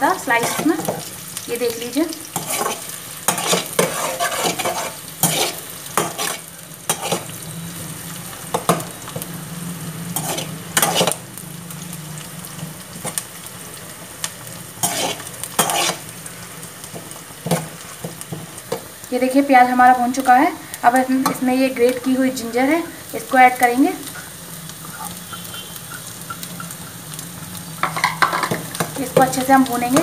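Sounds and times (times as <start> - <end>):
onions sizzling in hot oil: 0.0 - 30.0
metal ladle scraping pan: 0.4 - 1.1, 2.4 - 7.3, 10.2 - 11.2, 14.8 - 16.1, 27.8 - 30.0.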